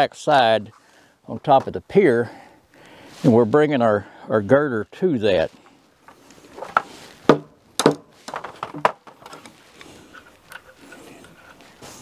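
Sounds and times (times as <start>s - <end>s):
sharp knocks on wooden girder: 6.6s - 9.2s.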